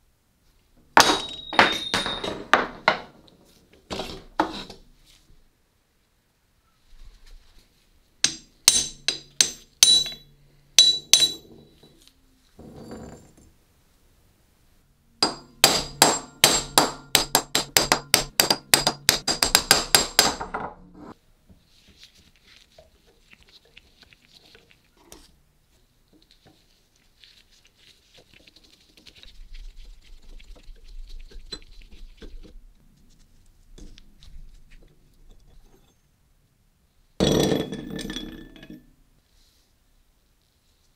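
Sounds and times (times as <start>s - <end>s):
metal strikes on iron vise: 1.0s - 3.1s, 8.2s - 11.7s, 15.2s - 20.8s.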